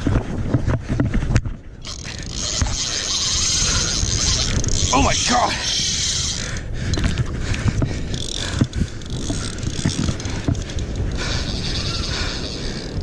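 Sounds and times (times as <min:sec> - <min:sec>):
fishing reel ticking: 0:01.8 - 0:13.0.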